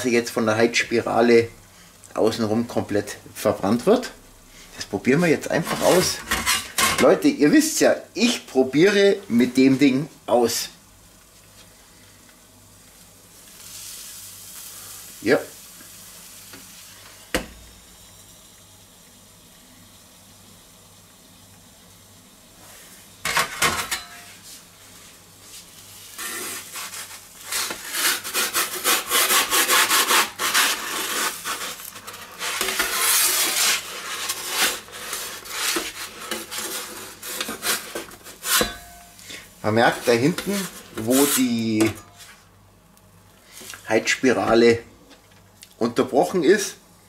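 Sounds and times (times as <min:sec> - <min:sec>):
metal peel scraping stone: 0:05.6 - 0:07.0, 0:26.2 - 0:39.0.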